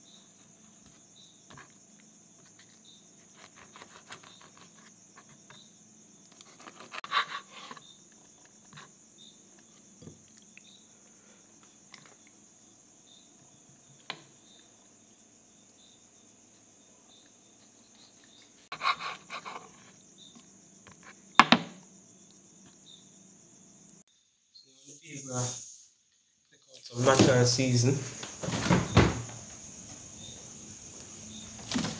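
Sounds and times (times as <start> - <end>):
high insect trill: 0.0 - 31.9
knife cutting on plastic board: 2.4 - 5.4, 6.3 - 7.8, 18.7 - 19.9.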